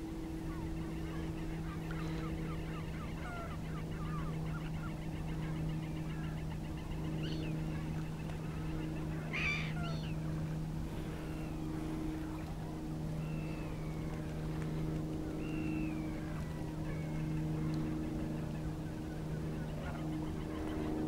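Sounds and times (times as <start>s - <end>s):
distant motor engine drone: 0.0s - 21.0s
waterbird calls: 0.4s - 10.3s.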